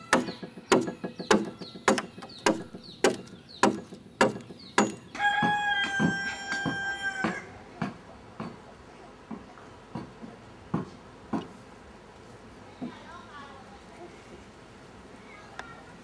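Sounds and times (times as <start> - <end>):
tool chopping into wood: 0.0 - 7.4
rooster crowing: 5.1 - 7.6.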